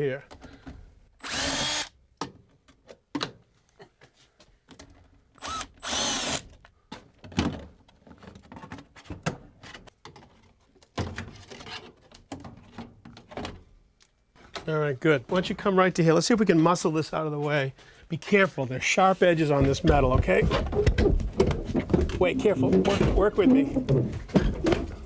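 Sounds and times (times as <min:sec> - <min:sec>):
cordless drill whining: 0:01.2 - 0:02.0, 0:05.4 - 0:06.4.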